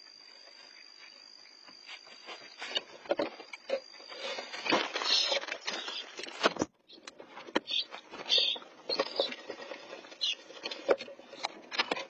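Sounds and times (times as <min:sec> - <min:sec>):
high cricket trill: 0:00.0 - 0:06.2
scratching inside wooden nest box: 0:07.6 - 0:10.8.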